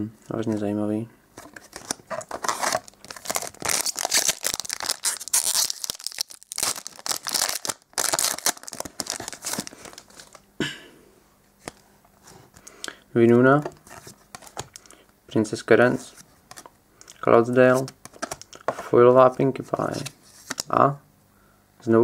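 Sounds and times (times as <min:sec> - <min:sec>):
foil wrapper tearing and crinkling: 0:01.7 - 0:10.4.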